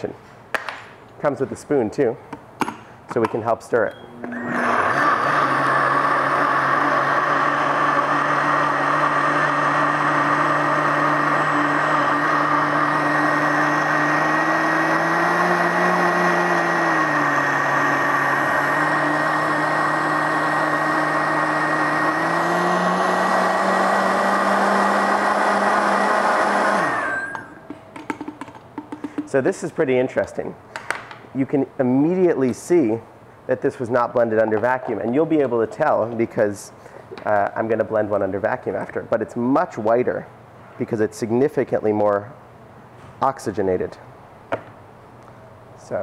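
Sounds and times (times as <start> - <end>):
blender motor running: 4.1 - 27.6.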